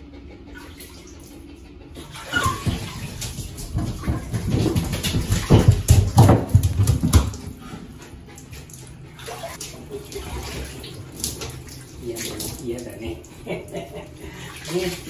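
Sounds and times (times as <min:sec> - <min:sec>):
paws scrabbling on tub: 0:00.6 - 0:15.0
thuds in a bathtub: 0:02.2 - 0:07.5.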